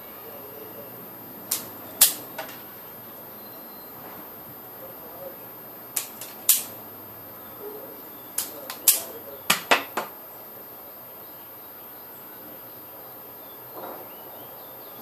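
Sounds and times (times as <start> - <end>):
hand tools clicking on wire: 1.5 - 2.7, 6.0 - 6.8, 8.4 - 10.1.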